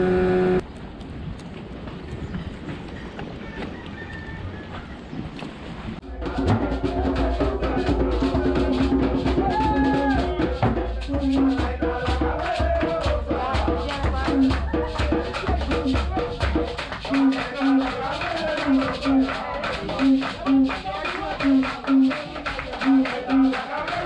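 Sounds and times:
music with percussive beat and bass: 6.0s - 24.0s.

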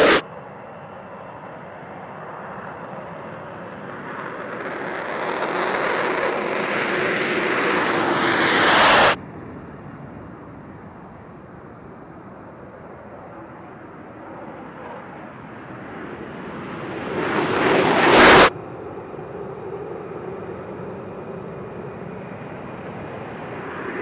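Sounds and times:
jet taking off: 0.0s - 9.2s, 12.1s - 24.0s.

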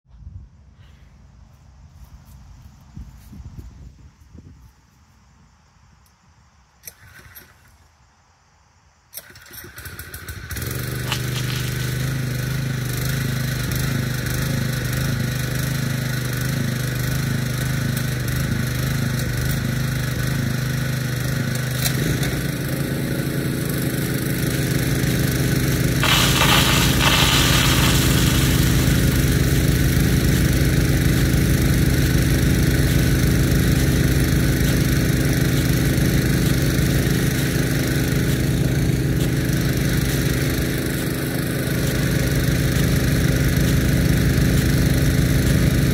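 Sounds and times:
pump engine running: 9.2s - 45.9s
hissing burst: 26.0s - 29.9s.

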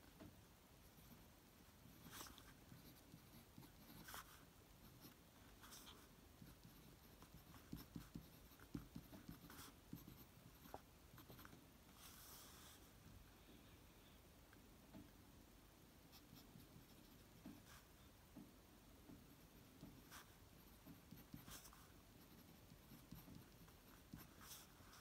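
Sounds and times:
fountain pen scratching on paper: 1.9s - 12.6s, 19.6s - 25.0s.

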